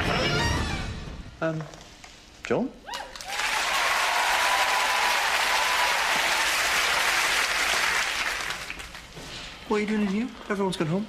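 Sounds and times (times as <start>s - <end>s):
studio audience applauding: 3.1s - 9.1s.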